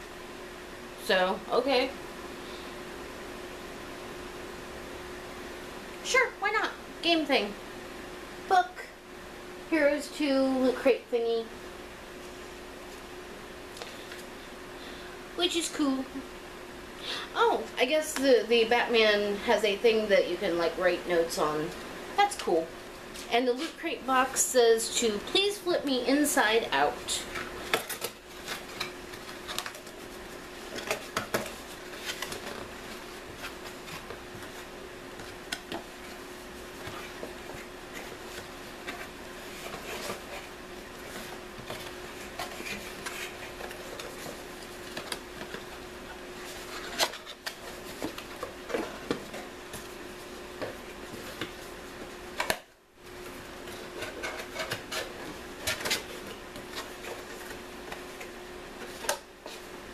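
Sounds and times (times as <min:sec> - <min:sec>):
faint steady hum: 0:00.0 - 0:59.9.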